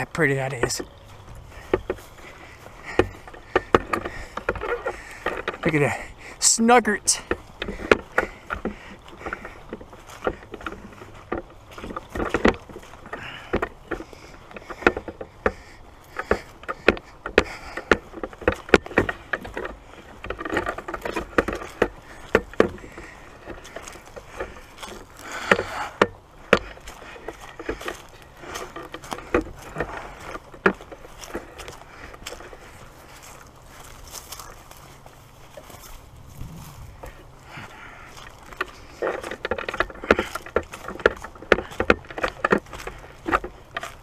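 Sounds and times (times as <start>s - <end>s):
footsteps crunching through dry grass: 0.0s - 44.0s
dry stems swishing: 31.1s - 41.2s.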